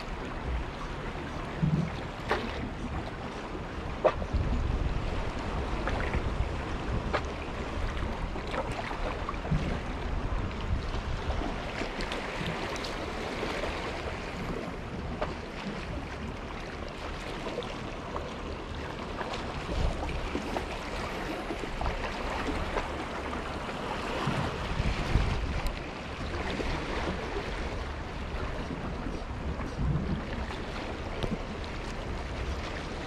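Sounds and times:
wind: 0.0s - 33.0s
wind gusts buffeting microphone: 3.8s - 8.4s, 9.4s - 14.7s, 24.2s - 31.5s.

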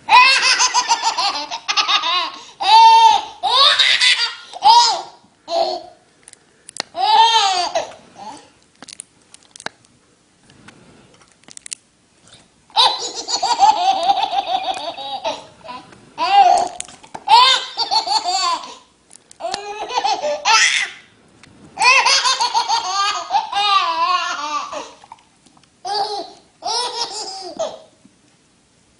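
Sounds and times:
baby laughing: 0.1s - 6.0s, 7.0s - 8.5s, 12.7s - 21.0s, 21.8s - 25.0s, 25.8s - 27.9s.

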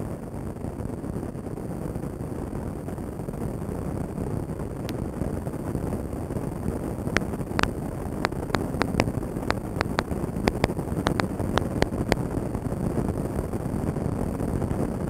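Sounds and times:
sharp clicks: 7.6s - 12.2s.

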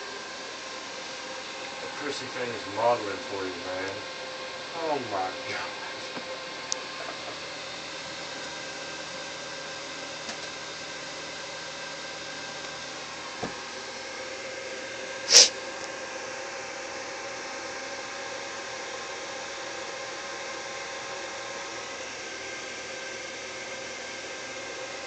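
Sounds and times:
sharp hissing burst: 15.2s - 15.6s.

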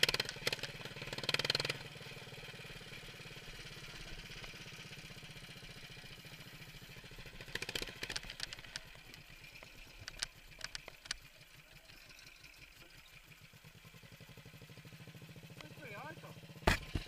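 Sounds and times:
sharp clicks and rattles: 0.0s - 1.8s, 7.2s - 13.4s
lawnmower engine idling: 0.0s - 17.0s.

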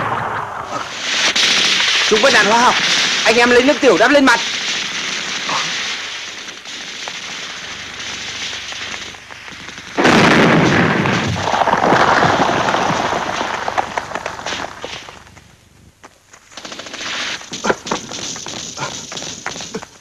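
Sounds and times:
loud explosion blast: 0.0s - 8.5s, 9.9s - 14.8s
crackling gunshots: 0.0s - 15.5s, 16.4s - 20.0s.

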